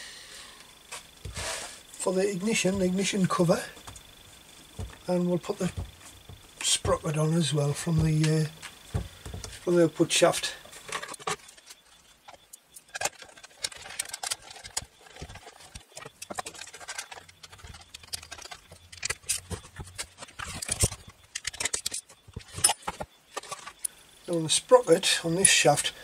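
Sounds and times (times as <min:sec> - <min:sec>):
plastic and metal clicks and rattles: 0:10.9 - 0:23.9.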